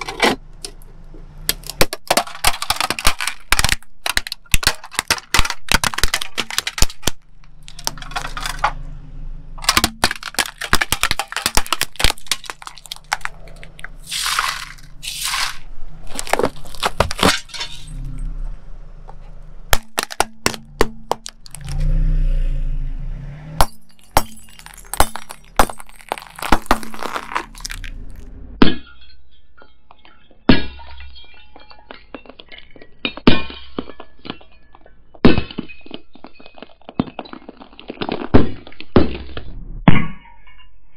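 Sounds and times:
tyre crushing plastic objects: 1.4s - 8.8s, 9.6s - 18.1s, 19.7s - 21.9s, 23.6s - 28.3s, 30.6s - 39.5s
glass tinkling: 28.8s - 37.6s.

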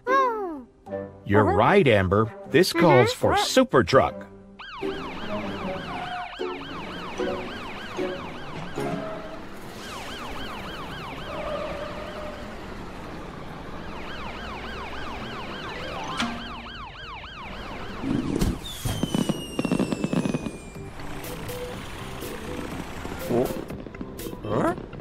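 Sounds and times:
cartoon siren wailing: 4.7s - 12.2s
crackling pops: 17.9s - 21.5s, 22.2s - 25.0s
whistle falling in pitch: 18.6s - 20.8s.

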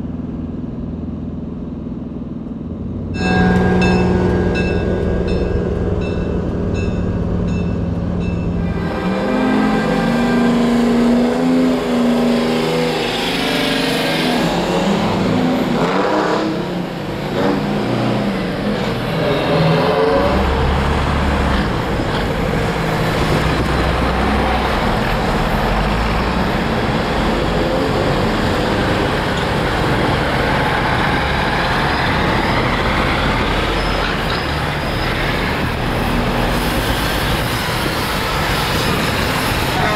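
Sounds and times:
deep low rumble: 0.0s - 8.6s
truck engines revving: 2.8s - 39.9s.

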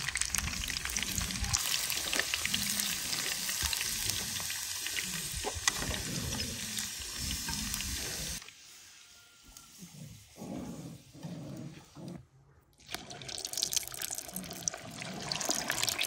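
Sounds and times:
deep-frying oil sizzling: 0.0s - 8.4s, 13.3s - 16.0s.

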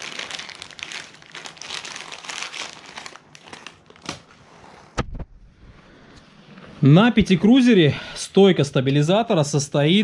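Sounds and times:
plastic bag crinkling: 0.0s - 4.3s.

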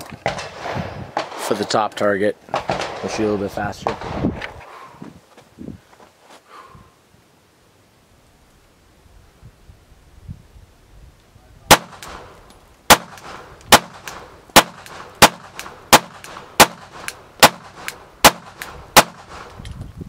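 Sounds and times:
pistol shots: 2.5s - 3.1s, 11.7s - 12.3s, 12.9s - 19.5s.

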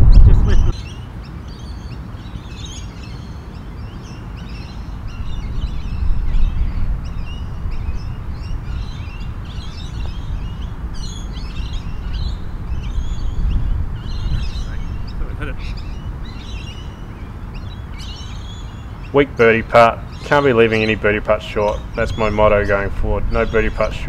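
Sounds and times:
low steady rumble: 0.0s - 0.8s, 4.6s - 19.1s
small birds chirping: 0.0s - 24.0s.

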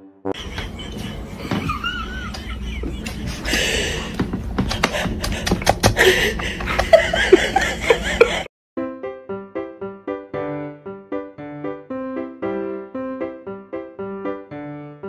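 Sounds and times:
soft human laughter: 0.4s - 8.5s.

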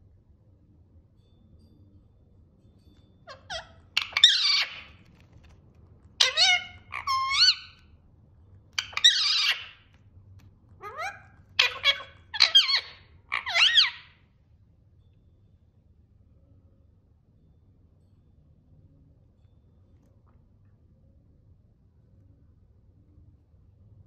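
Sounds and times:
parrot squawking: 3.3s - 5.0s, 6.2s - 7.8s, 8.8s - 9.9s, 10.8s - 14.2s.

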